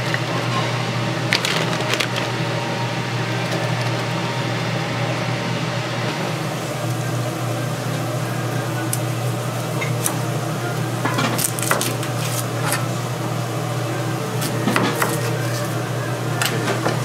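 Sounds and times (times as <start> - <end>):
utensils and dishes clinking: 9.8 - 10.2, 11.0 - 13.0.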